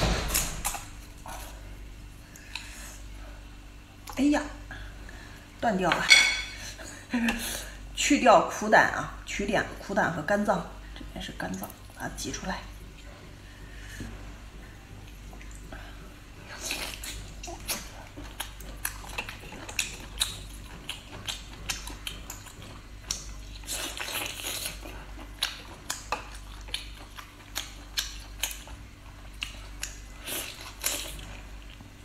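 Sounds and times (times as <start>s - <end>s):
wet sucking and chewing: 12.8s - 31.9s.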